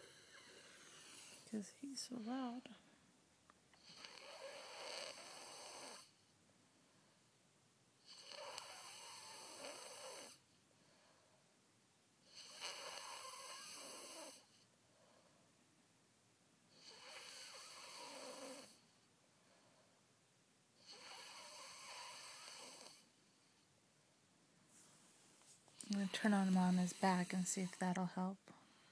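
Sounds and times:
child snoring: 0.0 - 1.5, 3.8 - 6.2, 8.0 - 10.4, 12.3 - 14.5, 16.7 - 18.8, 20.8 - 23.1, 25.8 - 28.2.

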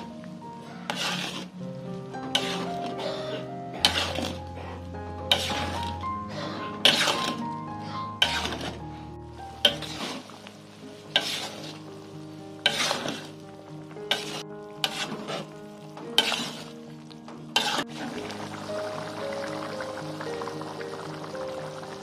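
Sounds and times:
ladle scraping a wok: 0.7 - 1.6, 2.2 - 11.9, 12.6 - 13.4, 14.1 - 16.8, 17.5 - 18.4
stew bubbling: 9.4 - 22.0.

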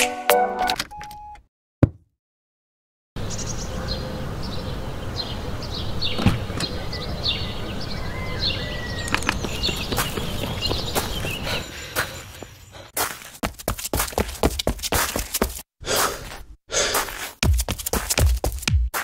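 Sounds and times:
thump: 1.8 - 2.0
small birds chirping: 3.2 - 13.0.

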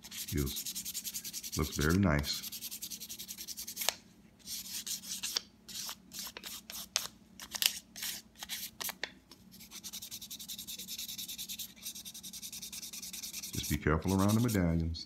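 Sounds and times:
sandpaper rubbing on wood: 0.0 - 3.9, 9.6 - 14.7.

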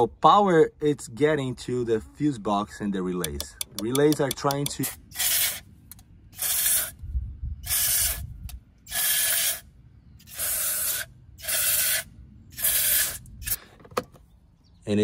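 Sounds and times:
aerosol spray hissing bursts: 6.4 - 6.9, 10.3 - 13.2.

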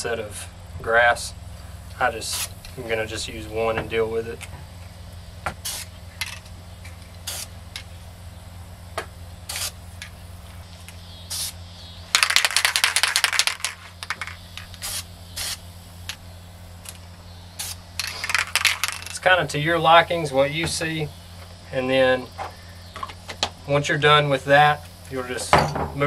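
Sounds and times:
spray paint hisses: 1.6 - 3.7, 4.8 - 21.6
spray can rattling when shaken: 12.1 - 15.6, 17.6 - 19.4.

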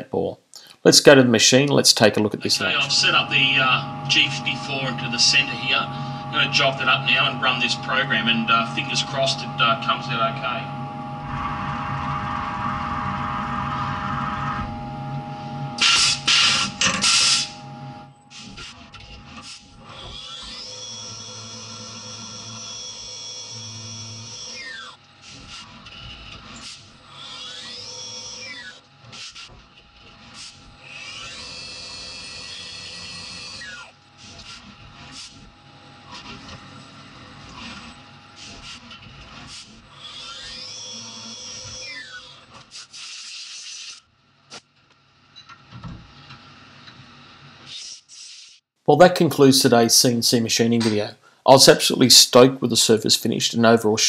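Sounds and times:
milling machine humming: 2.2 - 42.6.

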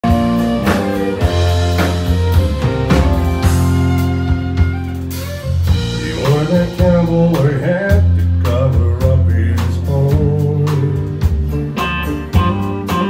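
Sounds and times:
fiddle melody: 0.0 - 7.2
country band playing: 0.0 - 13.0.

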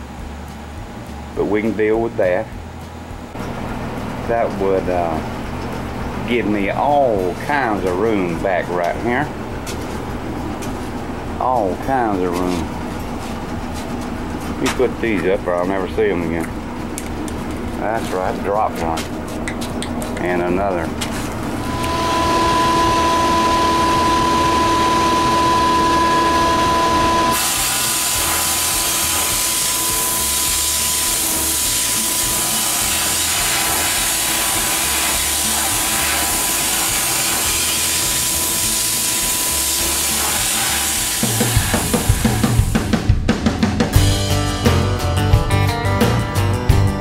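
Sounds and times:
music: 0.0 - 19.7, 21.5 - 47.0
humming whine: 0.0 - 43.2
sandblasting air hiss: 21.7 - 42.9.

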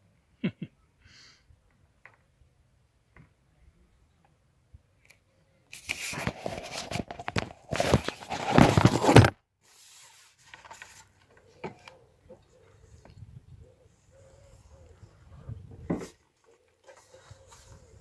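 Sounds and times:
phone handling rustling and scraping: 5.8 - 9.4, 10.4 - 12.0.

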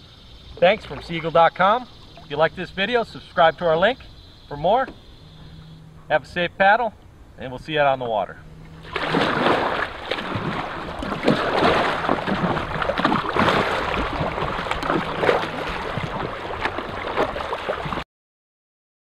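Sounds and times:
water rushing: 0.0 - 18.0
wind: 0.0 - 18.0
paddle splashing in water: 0.6 - 2.9, 8.6 - 18.0.

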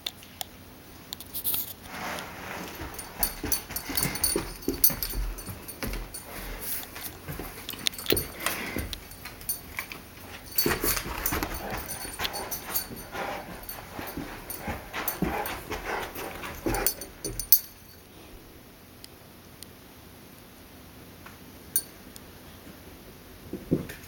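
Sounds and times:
dog whining: 10.2 - 17.6.

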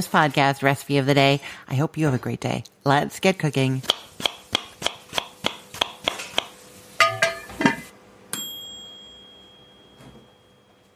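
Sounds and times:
bright ding: 8.3 - 10.9.

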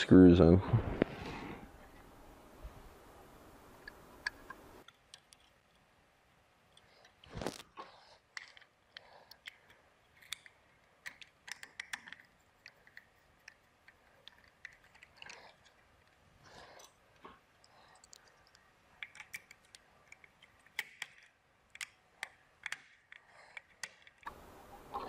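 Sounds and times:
screwdriver clicks and scrapes: 3.8 - 5.9, 6.7 - 17.0, 18.0 - 24.3.

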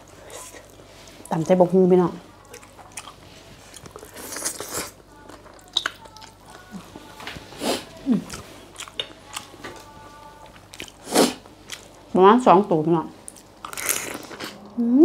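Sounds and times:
wet chewing and smacking: 2.4 - 6.7, 8.2 - 12.0.

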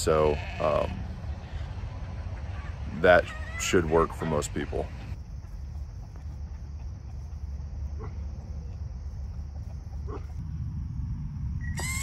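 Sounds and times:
low rumble: 4.9 - 11.8
short animal calls: 11.7 - 12.0.

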